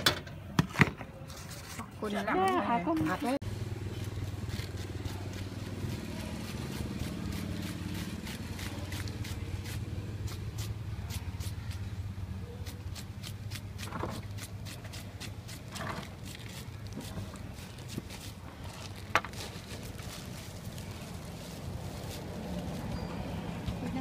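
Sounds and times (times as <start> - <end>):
knife shaving a vegetable: 4.0 - 22.7.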